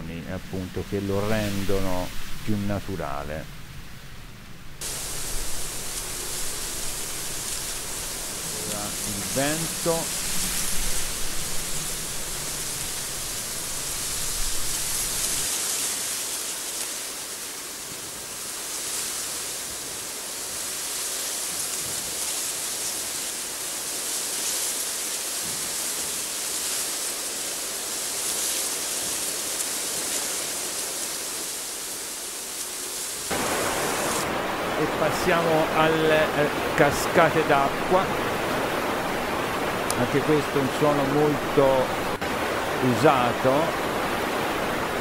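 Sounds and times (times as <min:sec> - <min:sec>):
waterfall: 0:00.0 - 0:45.0
wind rushing hiss: 0:01.2 - 0:42.8.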